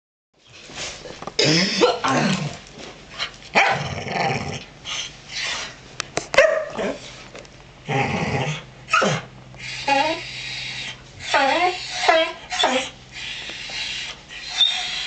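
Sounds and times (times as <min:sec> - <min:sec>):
dogs growling and barking: 0:01.4 - 0:05.8, 0:07.8 - 0:15.0.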